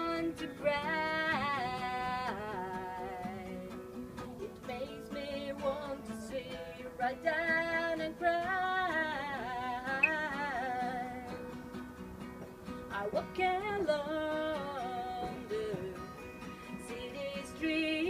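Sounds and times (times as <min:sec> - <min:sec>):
plucked acoustic guitar: 0:00.0 - 0:18.0
woman singing with vibrato: 0:16.8 - 0:18.0.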